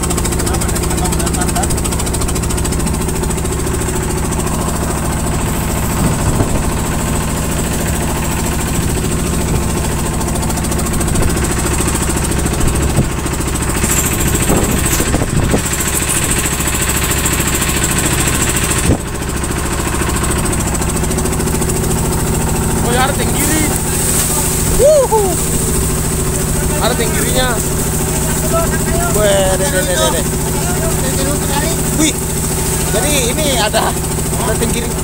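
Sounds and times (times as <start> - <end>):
boat engine humming: 0.0 - 35.0
knocks and clatters: 13.6 - 16.6.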